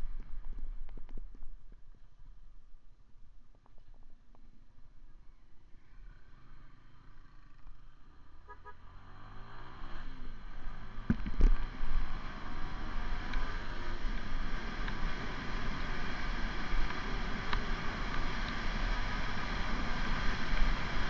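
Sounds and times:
wind and road noise: 0:00.0 - 0:21.0
motorcycle engine accelerating: 0:06.1 - 0:21.0.

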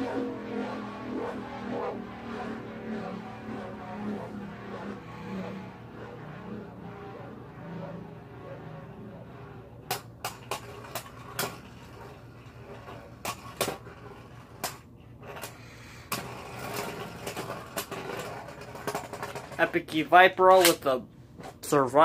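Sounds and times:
spinning tops whirring: 0:00.0 - 0:20.9.

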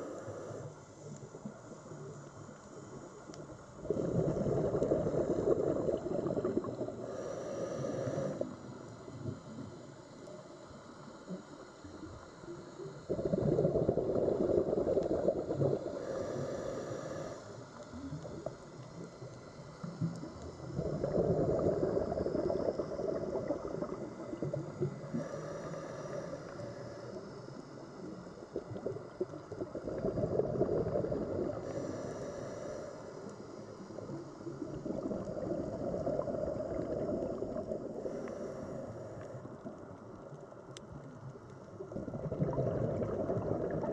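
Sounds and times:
regulator inhaling hiss: 0:00.0 - 0:29.3, 0:30.0 - 0:39.6
bubbling exhaled air underwater: 0:03.1 - 0:09.8, 0:12.8 - 0:32.5, 0:33.8 - 0:40.2, 0:41.7 - 0:43.9.

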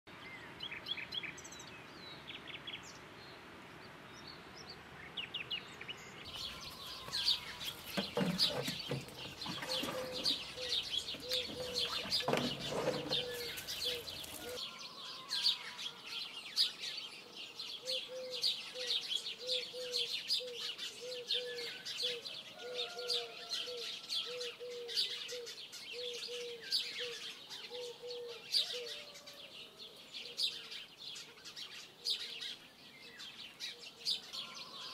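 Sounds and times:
small birds chirping: 0:00.1 - 0:34.9.

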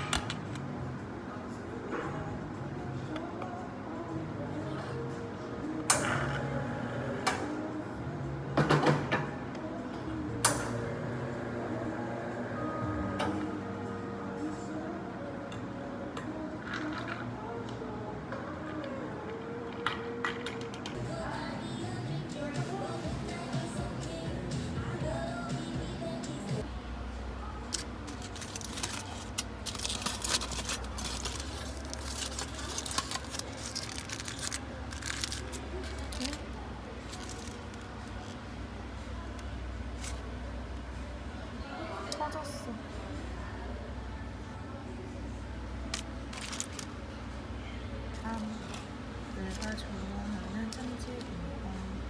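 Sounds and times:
aluminium foil crinkling: 0:27.7 - 0:38.4, 0:46.0 - 0:46.9.

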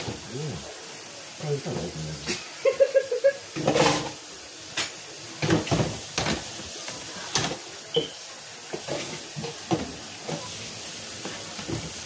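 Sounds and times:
water rushing: 0:00.0 - 0:12.0
squeaky dish washing: 0:01.4 - 0:12.0
dishes and utensils clinking: 0:03.6 - 0:06.5, 0:07.2 - 0:10.6.

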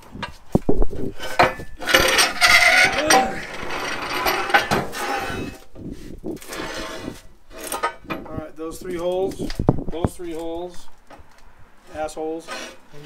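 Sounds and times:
metal clanking and scraping: 0:00.2 - 0:08.4, 0:12.4 - 0:13.0.

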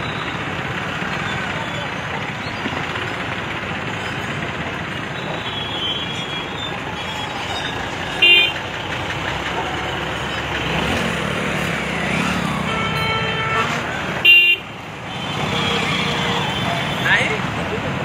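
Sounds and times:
heavy machinery engines running: 0:00.0 - 0:18.0
vehicle horn toot: 0:08.2 - 0:08.6, 0:12.6 - 0:17.0.

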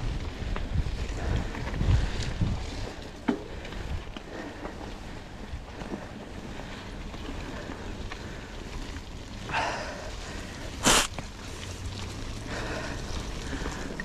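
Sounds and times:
wind on microphone: 0:00.0 - 0:03.0
bike tyres rumbling on dirt: 0:00.0 - 0:14.0.

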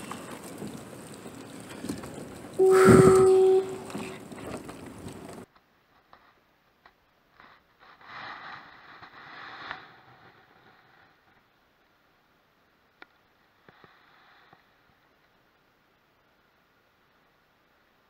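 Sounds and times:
wind and water noise: 0:00.0 - 0:05.5
faint scraping and rustling: 0:00.0 - 0:11.6.

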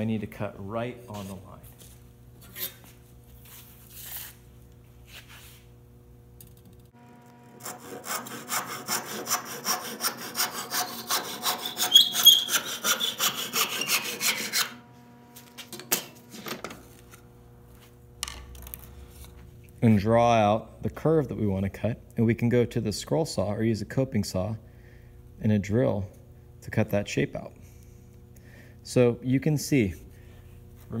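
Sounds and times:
handsaw cutting wood: 0:07.6 - 0:14.8.

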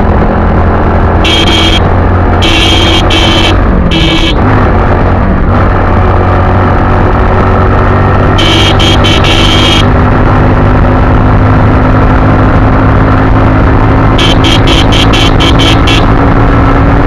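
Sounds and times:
motorcycle engine running: 0:00.0 - 0:17.0
high buzzing bursts: 0:01.2 - 0:01.8, 0:02.4 - 0:04.4, 0:08.4 - 0:09.9, 0:14.2 - 0:16.1.

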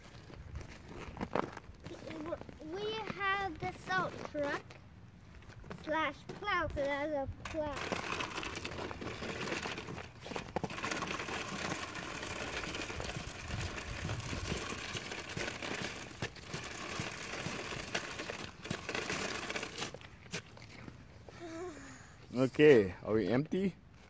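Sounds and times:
toy truck scraping over grit: 0:07.5 - 0:20.6.

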